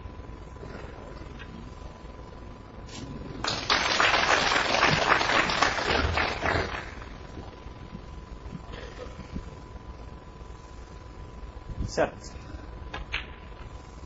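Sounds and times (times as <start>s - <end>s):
audience applauding: 3.4s - 7.2s.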